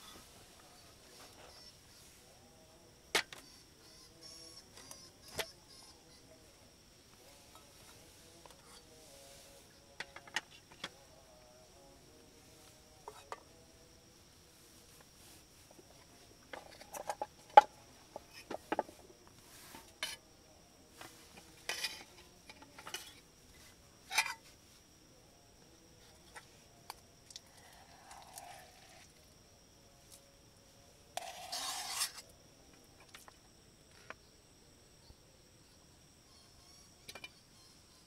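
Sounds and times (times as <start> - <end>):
cutlery scraping: 21.6 - 22.1, 31.2 - 32.2.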